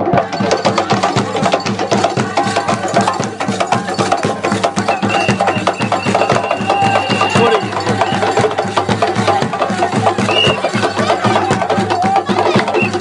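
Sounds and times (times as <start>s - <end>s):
wooden xylophone music: 0.0s - 13.0s.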